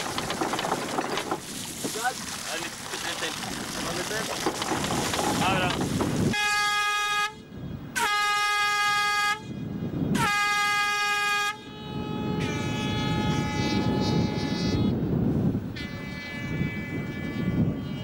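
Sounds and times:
air horn blasts: 6.3 - 15.0, 15.7 - 18.0.

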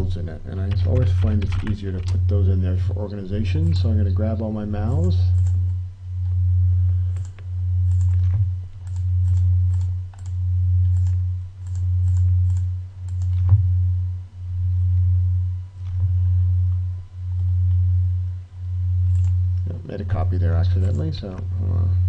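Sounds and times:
loud low hum: 0.0 - 22.0
computer mouse clicking: 7.1 - 13.6, 19.1 - 19.4.

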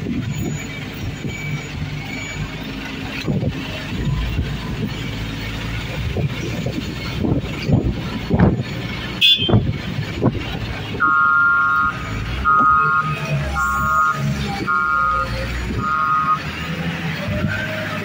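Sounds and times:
diesel engine running: 0.0 - 18.0
reversing alarm beeping: 0.3 - 3.2, 11.0 - 16.9.

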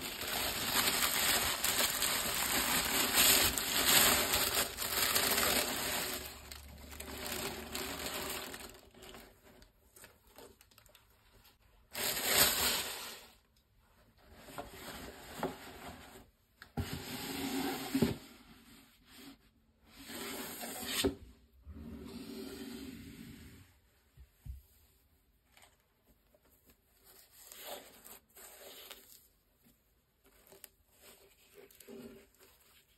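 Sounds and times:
tissue paper crinkling: 0.0 - 11.0, 11.9 - 13.2.

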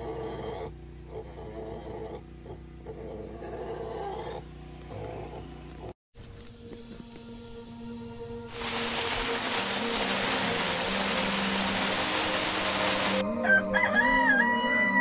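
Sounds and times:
loud steady hiss: 8.5 - 13.2
rooster crowing: 13.1 - 15.0.

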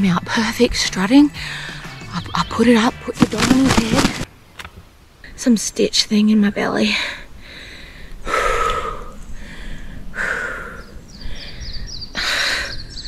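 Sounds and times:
woman breathing heavily: 1.4 - 2.0, 6.9 - 13.0.

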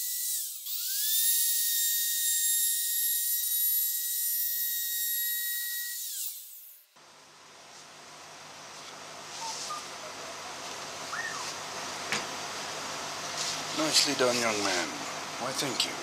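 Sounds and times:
trim router whine: 0.0 - 6.9.

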